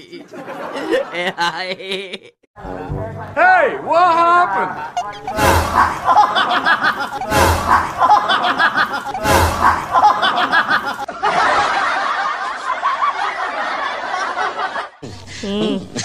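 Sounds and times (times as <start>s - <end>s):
crowd laughing: 0.0s - 2.4s, 4.5s - 16.0s
sharp noise: 5.0s - 11.1s.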